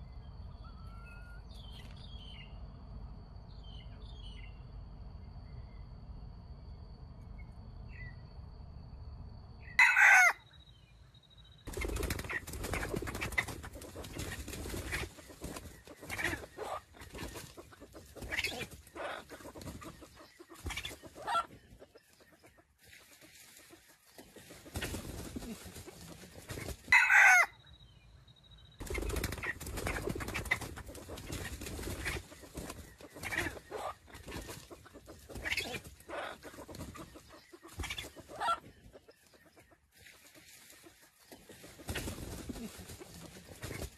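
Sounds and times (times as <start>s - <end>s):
rooster crowing: 9.8s - 10.4s, 26.9s - 27.6s
roosters clucking and calling: 9.8s - 10.4s, 11.6s - 28.1s, 28.7s - 43.9s.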